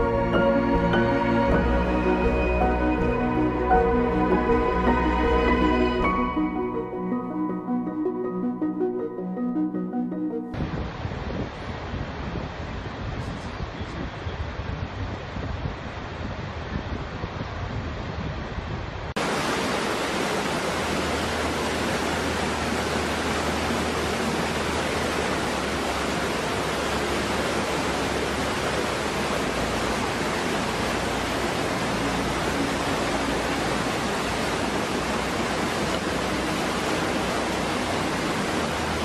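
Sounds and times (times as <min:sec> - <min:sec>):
waterfall pouring into pool: 0:19.2 - 0:39.0.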